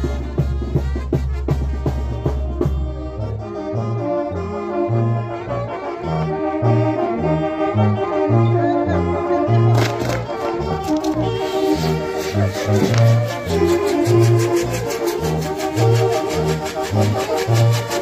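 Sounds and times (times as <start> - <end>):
drum beats: 0.0 - 3.1, 9.7 - 18.0
brass band playing dance music: 0.0 - 18.0.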